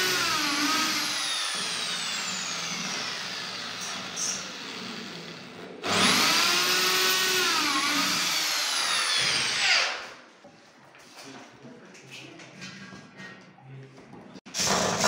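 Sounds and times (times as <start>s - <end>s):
electric drill boring into wood: 0.0s - 10.0s.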